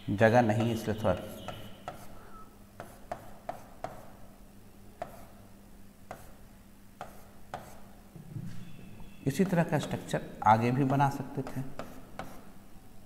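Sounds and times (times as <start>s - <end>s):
marker pen tapping on board: 0.6s - 0.8s, 1.5s - 2.1s, 2.8s - 4.1s, 5.0s - 5.3s, 6.1s - 6.4s, 7.0s - 7.8s, 10.8s - 12.4s.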